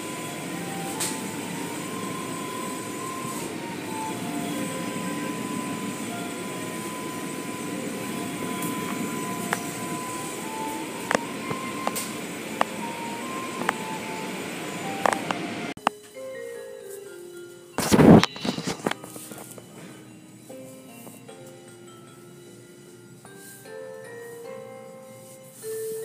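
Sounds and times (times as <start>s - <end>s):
car wash water spray and machinery: 0.0s - 15.8s.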